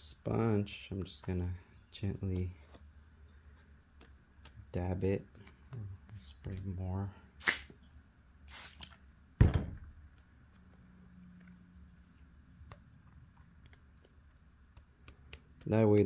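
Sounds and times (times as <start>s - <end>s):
faint handling sounds: 0.7s - 7.1s, 10.0s - 16.0s
spray bottle squirts: 8.5s - 9.0s
loud thump: 9.4s - 9.9s.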